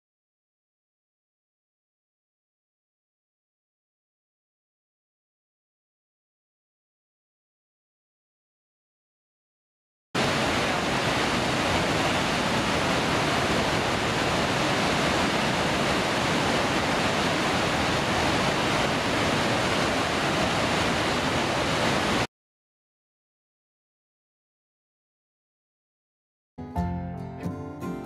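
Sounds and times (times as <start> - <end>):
waterfall rushing: 10.2 - 22.3.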